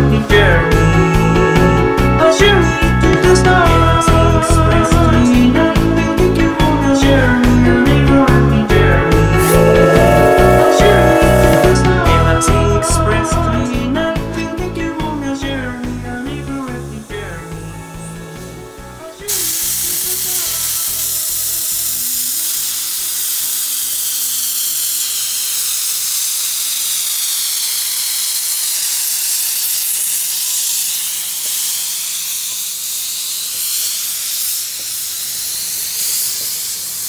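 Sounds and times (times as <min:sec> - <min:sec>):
music: 0:00.0 - 0:21.4
steam hissing: 0:19.3 - 0:37.0.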